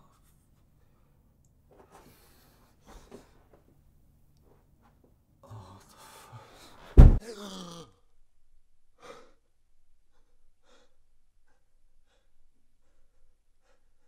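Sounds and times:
loud thump with falling tone: 0:07.0 - 0:07.2
man groaning: 0:07.2 - 0:08.0.

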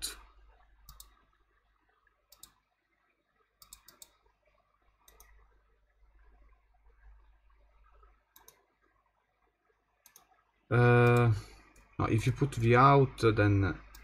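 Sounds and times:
mouse and keyboard clicks: 0:00.9 - 0:01.2, 0:02.3 - 0:02.6, 0:03.6 - 0:04.2, 0:05.1 - 0:05.3, 0:08.4 - 0:08.6.

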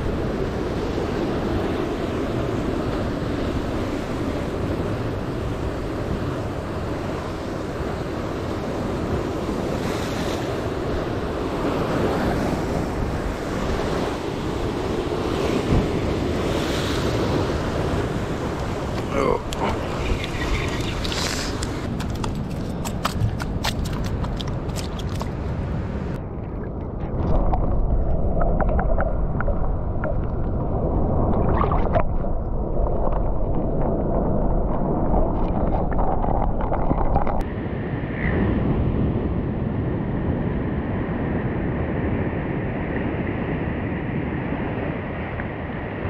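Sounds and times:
surf washing on rocks: 0:00.1 - 0:26.2
muffled underwater rushing: 0:26.1 - 0:37.4.

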